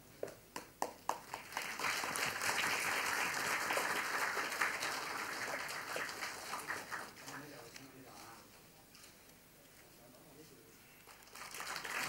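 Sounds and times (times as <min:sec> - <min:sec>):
audience applauding: 0:01.1 - 0:07.5, 0:11.1 - 0:12.0.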